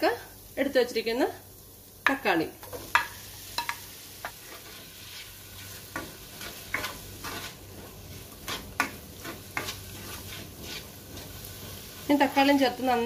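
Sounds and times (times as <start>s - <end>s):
vegetables sizzling in frying pan: 0.0s - 13.0s
spatula scraping and knocking pan: 2.6s - 12.1s.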